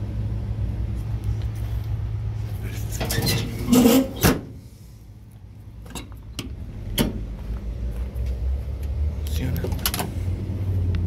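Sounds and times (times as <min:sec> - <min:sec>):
metal compartment door slamming: 0:03.1 - 0:04.6, 0:07.0 - 0:07.2.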